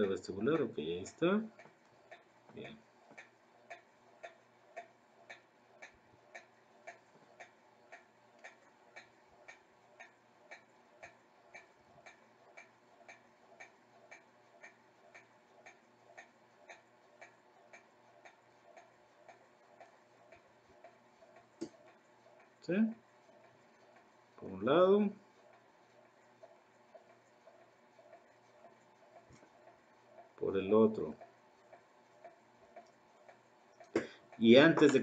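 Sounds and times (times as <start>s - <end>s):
faint steady ticking: 0.0s - 35.0s.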